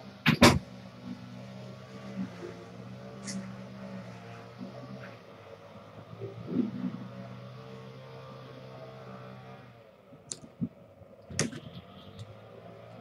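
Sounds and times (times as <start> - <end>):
sharp clicks: 10.3 - 10.7.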